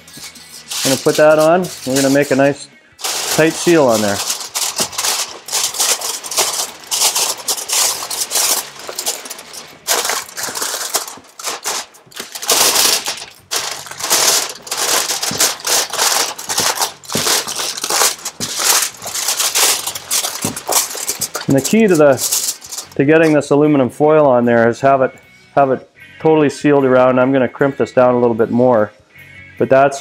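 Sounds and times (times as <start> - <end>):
aluminium foil crinkling: 0.0 - 23.4.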